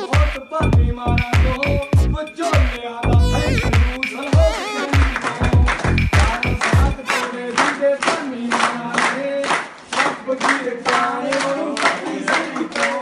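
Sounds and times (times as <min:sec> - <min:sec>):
people clapping in rhythm: 0:00.0 - 0:00.6, 0:01.2 - 0:13.0
dance music with deep bass: 0:00.0 - 0:07.2
people singing along: 0:10.0 - 0:13.0.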